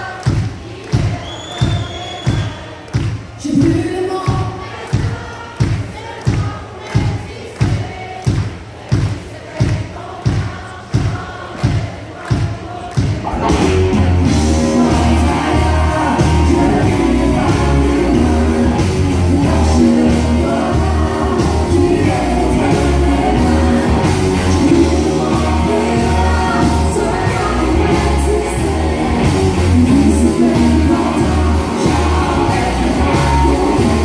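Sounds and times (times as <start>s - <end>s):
woman singing lead vocal: 0.0s - 13.3s, 14.4s - 34.0s
country-rock band playing: 13.2s - 34.0s
pulsing bass beat: 13.3s - 34.0s.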